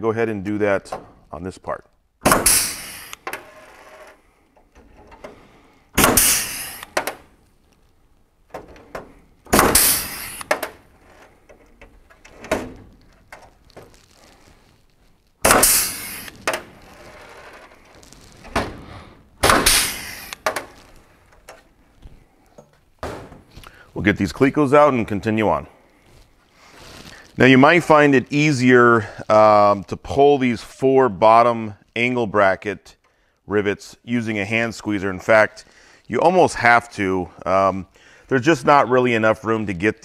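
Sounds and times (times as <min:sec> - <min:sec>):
rivet gun hiss and snap: 0:02.3 - 0:03.3, 0:06.0 - 0:07.2, 0:09.6 - 0:10.7, 0:15.4 - 0:16.6, 0:19.5 - 0:20.6.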